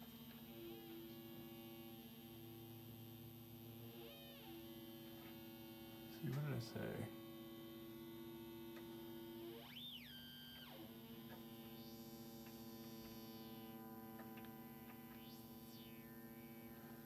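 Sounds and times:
synthesizer sawtooth drone: 14.7s - 17.0s.

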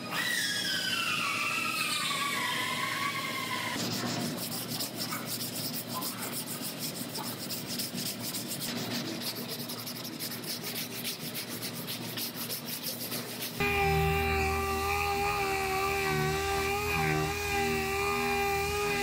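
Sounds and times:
sandpaper rasping strokes: 3.8s - 19.0s
air sander whine: 13.6s - 19.0s.

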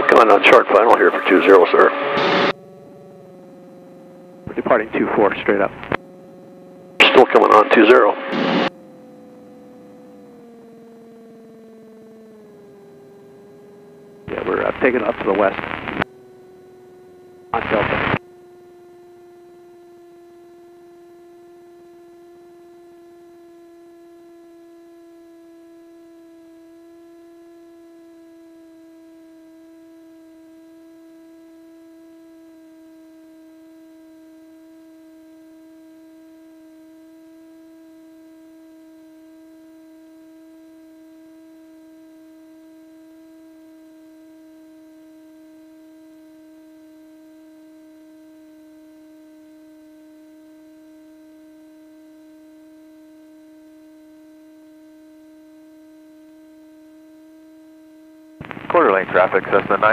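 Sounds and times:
radio intercom whine: 0.0s - 18.2s, 58.4s - 59.9s.

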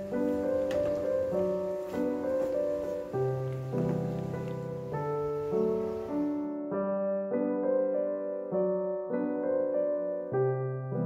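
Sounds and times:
faint hiss: 0.0s - 7.4s
gentle piano music: 0.0s - 11.0s.

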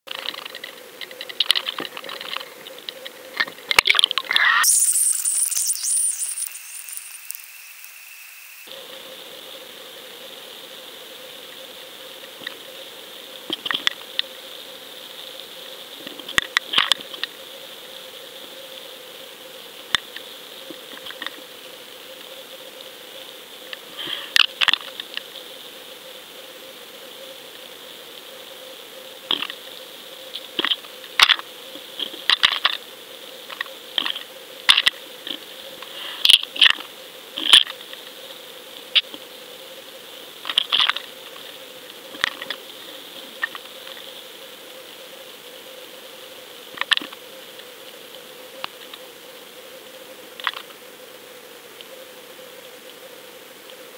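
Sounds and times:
steady electronic hum: 4.6s - 13.4s.

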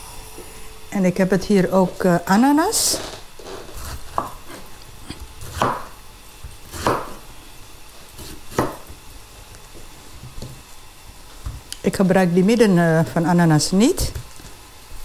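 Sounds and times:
knife cutting pineapple: 6.6s - 7.2s.

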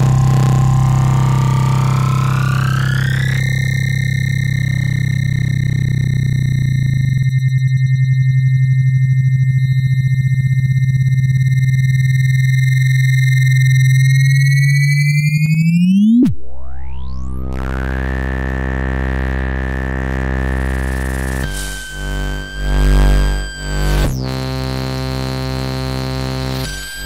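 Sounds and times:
dense chord of synth tones: 0.0s - 7.4s
low buzzing synth tone: 0.0s - 27.0s.

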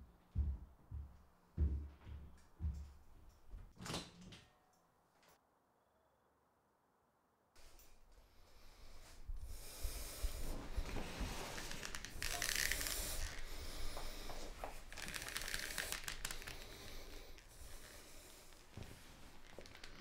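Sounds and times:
clothing rustling: 10.0s - 20.0s
leather belt sliding: 10.8s - 16.7s, 17.9s - 20.0s.

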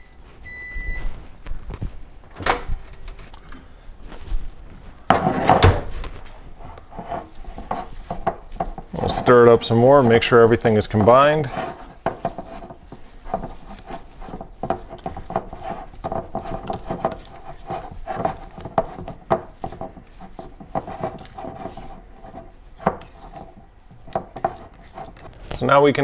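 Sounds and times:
spatula scraping dough in bowl: 6.5s - 25.7s.

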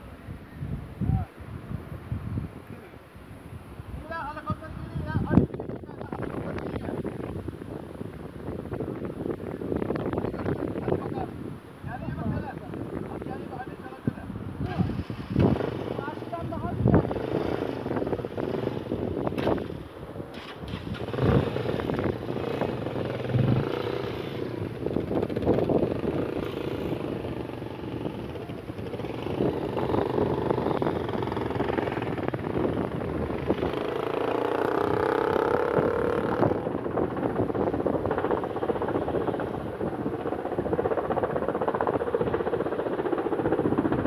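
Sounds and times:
helicopter rotor and engine drone: 11.9s - 44.0s.

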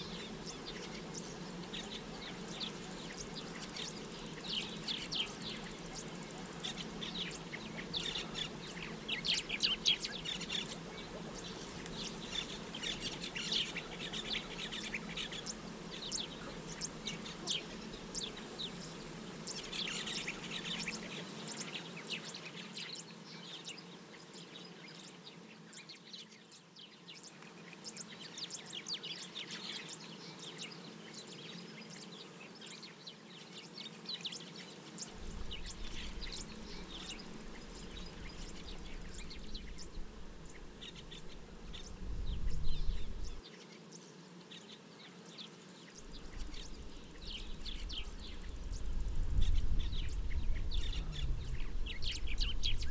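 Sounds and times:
small birds chirping: 0.0s - 52.9s
faint low hum: 46.1s - 52.9s.

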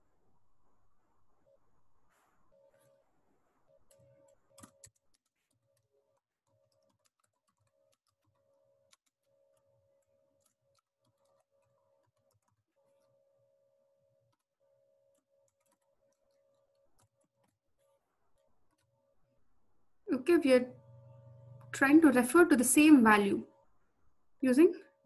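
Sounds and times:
keyboard typing: 3.8s - 13.1s, 15.1s - 19.0s
faint steady hum: 19.4s - 25.0s.

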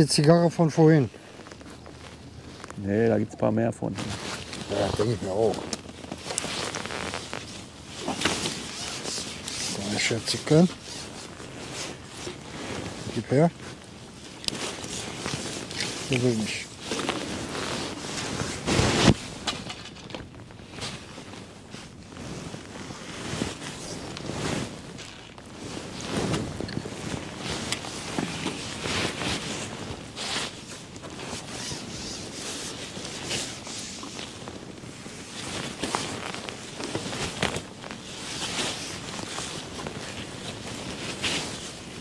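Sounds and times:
faint clicks and rustles of tackle: 0.0s - 42.0s
wind noise on microphone: 3.9s - 42.0s.

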